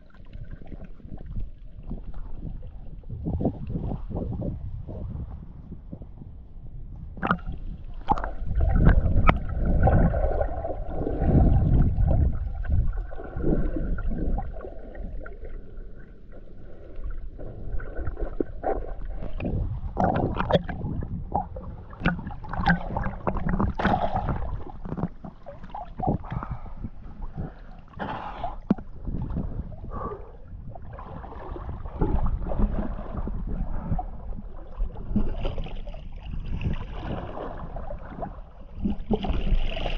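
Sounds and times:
low rumbling of waves: 0.0 - 39.9
water sloshing and gurgling: 0.0 - 39.9
water splashes: 7.2 - 30.1, 30.8 - 39.9.

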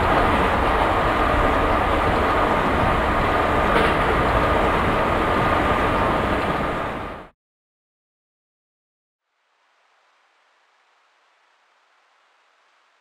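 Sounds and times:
high whine of train: 0.0 - 7.3
high-speed train rumble: 0.0 - 7.3.

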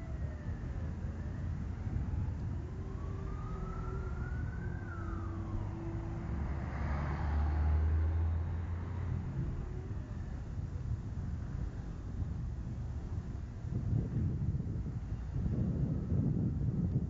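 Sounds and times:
emergency siren wailing: 0.0 - 12.2
street traffic rumble: 0.0 - 17.0.

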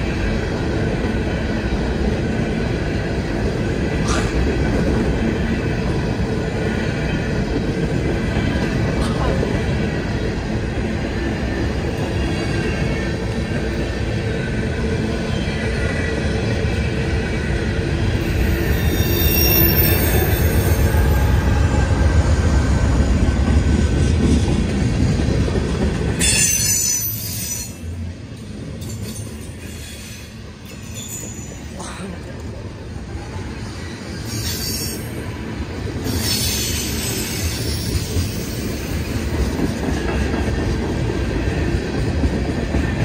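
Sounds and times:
diesel locomotive rumble: 0.0 - 26.4
train wheels rolling on rails: 0.0 - 43.0
wheel squeal: 18.5 - 21.1.

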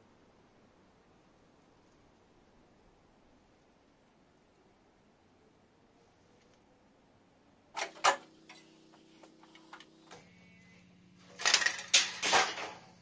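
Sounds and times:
steady low hum: 0.0 - 13.0
rusted sheet metal cracking: 11.3 - 12.9.

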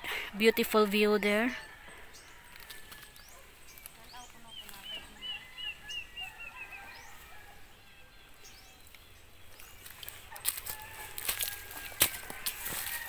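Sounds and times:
bird chirping: 1.0 - 10.4
footsteps crunching dry leaves: 1.8 - 7.7, 8.5 - 13.0.

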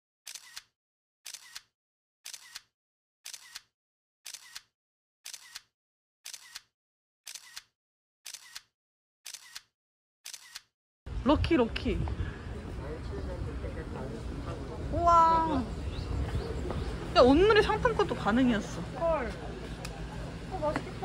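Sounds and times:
camera shutter double click: 0.3 - 0.7, 1.3 - 1.7, 2.3 - 2.7, 3.3 - 3.7, 4.3 - 4.7, 5.3 - 5.7, 6.3 - 6.7, 7.3 - 7.7, 8.3 - 8.7, 9.3 - 9.7, 10.3 - 10.7.

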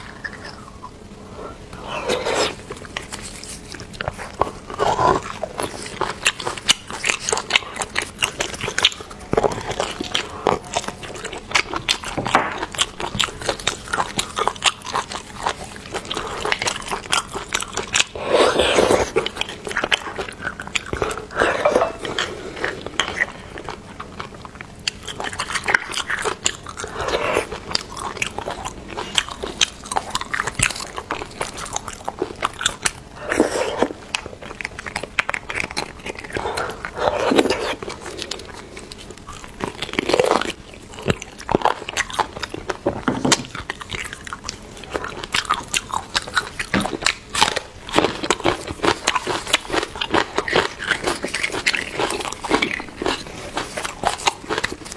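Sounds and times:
wet sucking and chewing: 0.0 - 54.9
metal spoon scraping bone: 21.4 - 22.2.

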